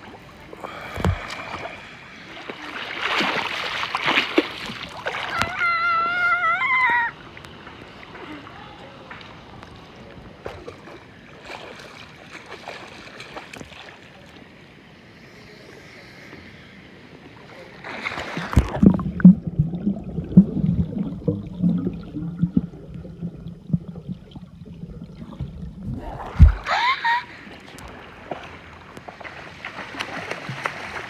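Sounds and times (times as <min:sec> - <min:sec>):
water lapping softly: 0:00.0 - 0:31.0
underwater knocks and gurgles: 0:00.9 - 0:01.6, 0:18.5 - 0:26.7
muffled underwater noise: 0:14.2 - 0:24.1, 0:24.7 - 0:27.8
camera splashing into water: 0:26.2 - 0:26.7.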